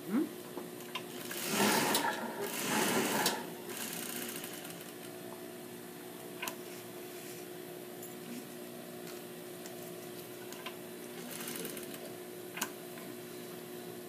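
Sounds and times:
sewing machine stitching: 1.1 - 5.0, 11.2 - 12.0
sewing machine motor humming: 1.1 - 5.1, 11.2 - 12.0.

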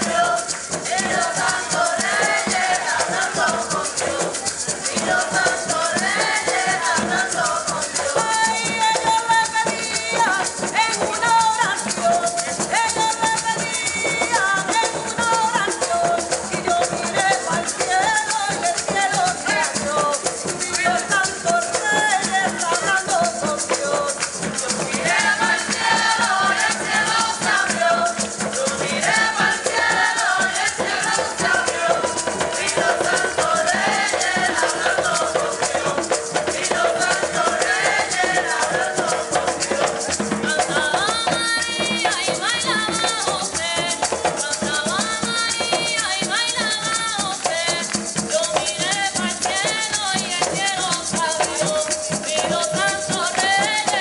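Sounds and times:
maracas shaking: 0.0 - 54.0
women singing: 0.0 - 54.0.

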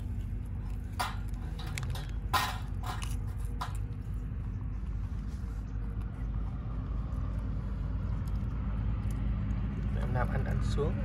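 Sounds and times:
food rustling and scraping: 0.0 - 6.4
steady low hum: 0.0 - 11.0.

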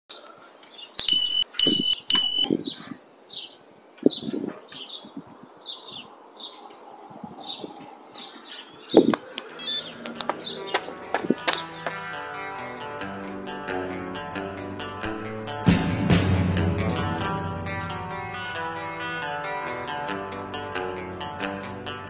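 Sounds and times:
birds chirping: 0.1 - 12.3
short electronic beeps: 1.0 - 2.6, 9.6 - 9.9.

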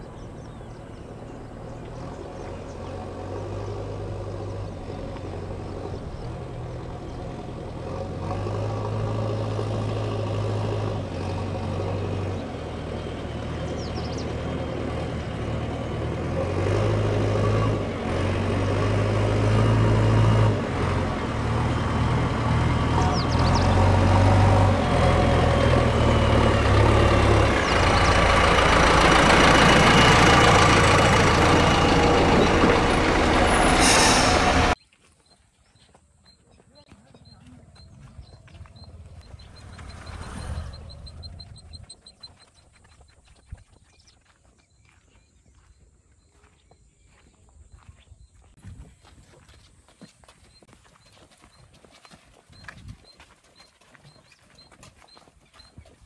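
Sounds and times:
diesel engines droning: 0.0 - 34.8, 36.8 - 43.3.

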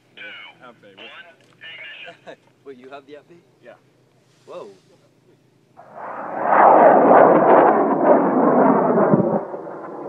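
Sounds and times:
rocket motor roaring: 5.8 - 10.0.

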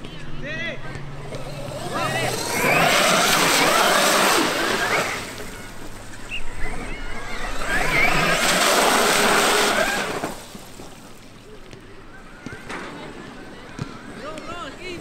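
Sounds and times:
electric motor whine: 1.2 - 10.6.

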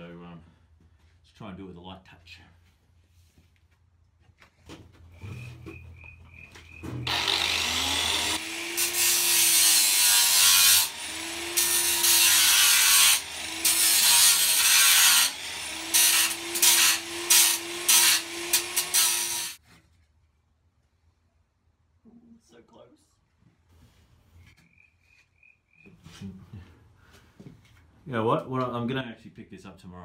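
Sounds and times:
grinder motor whine: 6.8 - 9.0
angle grinder grinding steel: 7.0 - 19.6.

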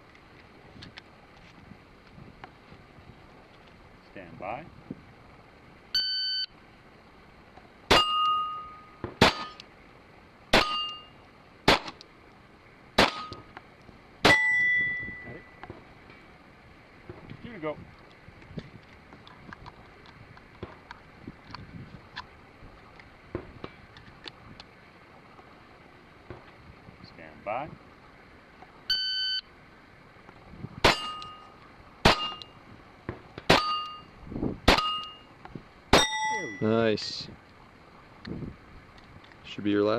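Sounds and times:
shot timer beep: 6.0 - 6.5, 28.9 - 29.5
steel plate ringing: 7.9 - 9.6, 10.5 - 11.2, 13.0 - 13.5, 14.2 - 16.2, 30.8 - 32.6, 33.5 - 36.8
pistol shots: 9.0 - 9.6, 10.5 - 11.0, 11.7 - 12.0, 13.0 - 13.4, 30.8 - 31.3, 32.0 - 32.4, 34.7 - 35.1.

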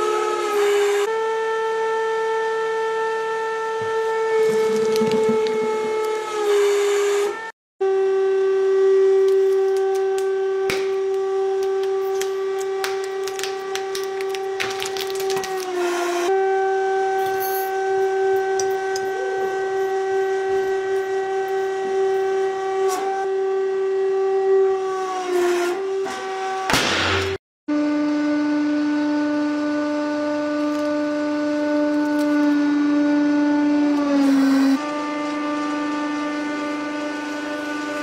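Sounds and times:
hydraulic pump whine: 0.0 - 38.0
material crackling and snapping: 9.3 - 15.8.

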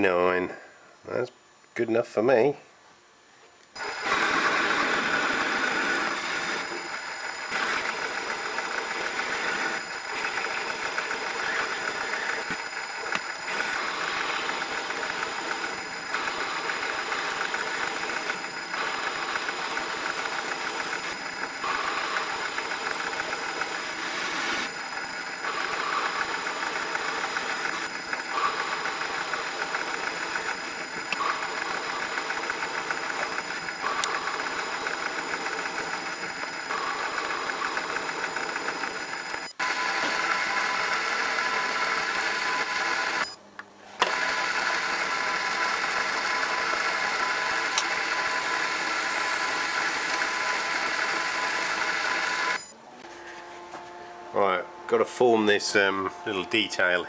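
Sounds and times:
lathe tool cutting hiss: 3.8 - 43.2
lathe machine whine: 3.8 - 43.4, 44.0 - 57.0.

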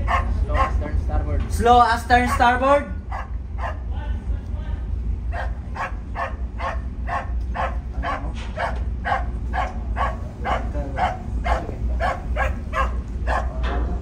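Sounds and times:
dog barking rapidly: 0.0 - 0.8, 2.2 - 3.9, 5.3 - 13.6
steady low rumble: 0.0 - 14.0.

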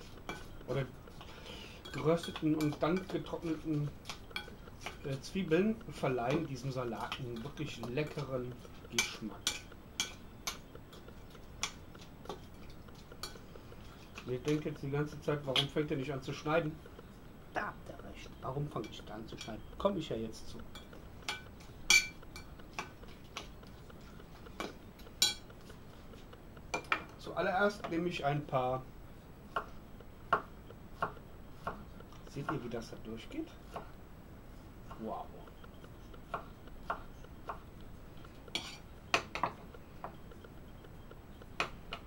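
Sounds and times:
knife scraping board: 38.6 - 38.8.

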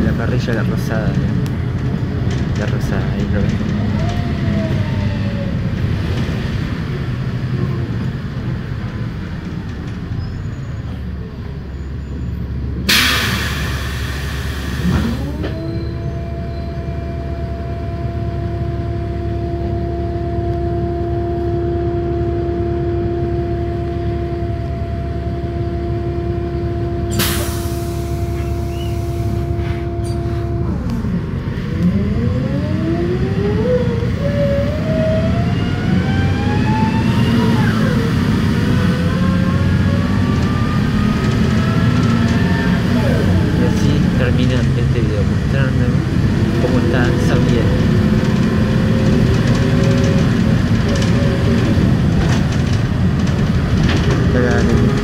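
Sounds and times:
bus engine rumble and whine: 0.0 - 55.0
short loud hisses: 12.9 - 15.0.

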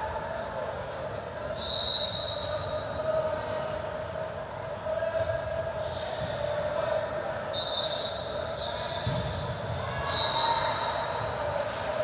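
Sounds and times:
voices in a hall: 0.0 - 12.0
shoe squeaks on court floor: 1.5 - 3.8, 7.6 - 10.6.

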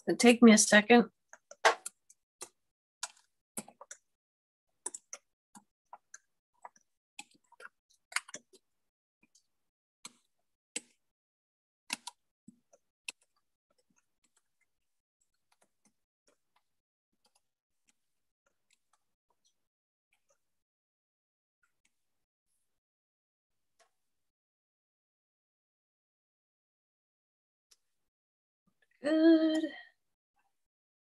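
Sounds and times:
computer mouse clicks: 4.8 - 8.6, 11.9 - 14.5.

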